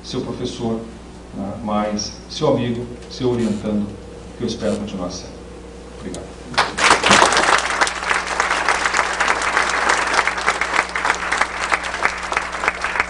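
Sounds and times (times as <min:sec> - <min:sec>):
steady low hum: 0:00.0 - 0:13.0
audience clapping: 0:06.6 - 0:13.0.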